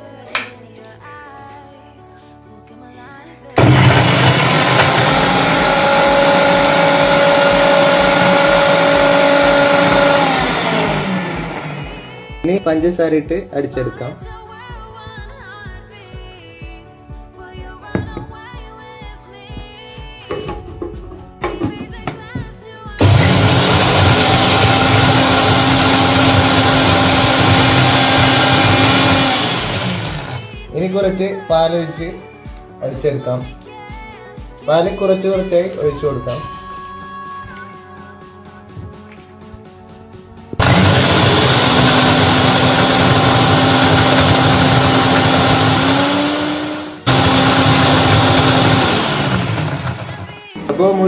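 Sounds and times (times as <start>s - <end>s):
mixer grinder motor whine: 3.6s - 12.7s, 23.0s - 31.0s, 40.6s - 51.0s.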